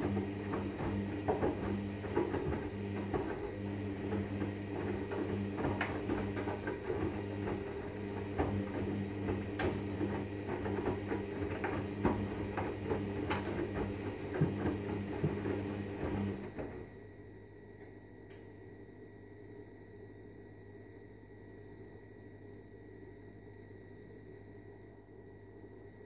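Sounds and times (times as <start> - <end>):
washing machine motor hum: 0.0 - 17.3.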